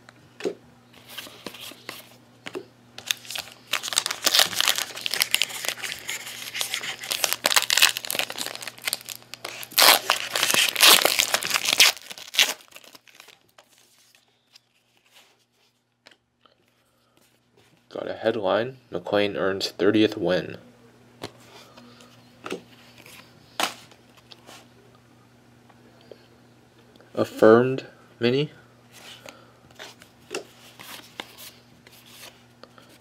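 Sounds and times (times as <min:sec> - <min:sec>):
wrapper tearing and crinkling: 0:03.0 - 0:13.8.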